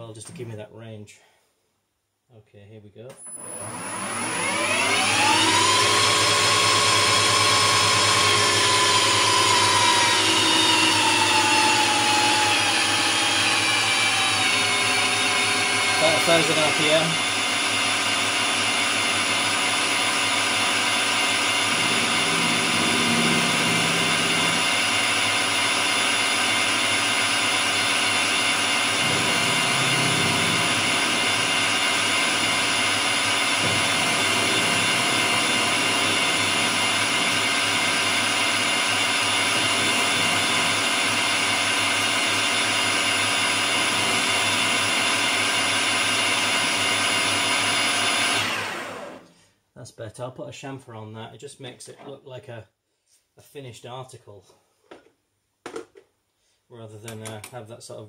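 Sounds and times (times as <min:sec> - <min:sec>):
metal lathe whining: 0:03.3 - 0:49.2.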